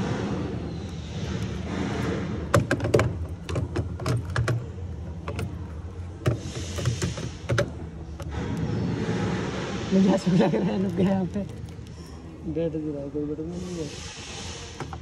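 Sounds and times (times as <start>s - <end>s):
sharp clicks and knocks: 2.5s - 8.7s.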